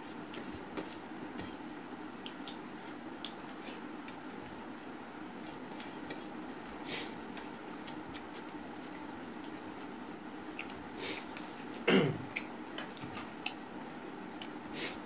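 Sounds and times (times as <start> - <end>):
fingers squishing food on plate: 2.0 - 4.6
chewing and mouth clicks: 2.1 - 4.2, 7.4 - 14.6.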